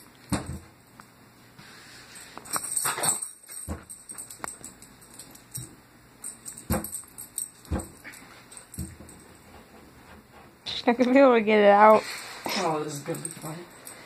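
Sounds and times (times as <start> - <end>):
short jingling rattle: 12.6 - 14.0.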